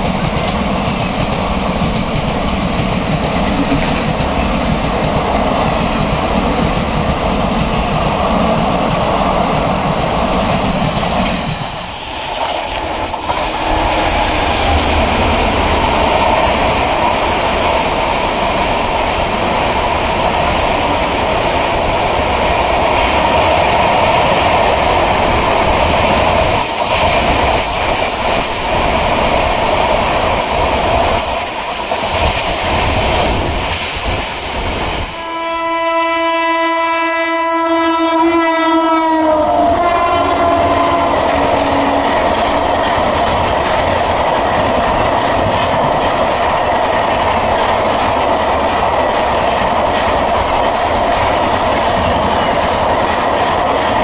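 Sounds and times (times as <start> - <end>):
train wheels clattering on rails: 0.0 - 35.7, 38.0 - 54.0
locomotive horn blast: 35.2 - 42.1.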